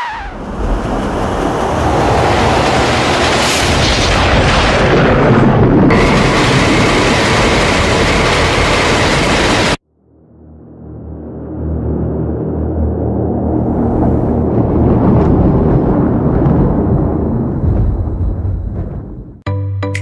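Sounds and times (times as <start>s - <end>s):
roller coaster rushing on steel track: 0.0s - 9.8s, 13.4s - 19.4s.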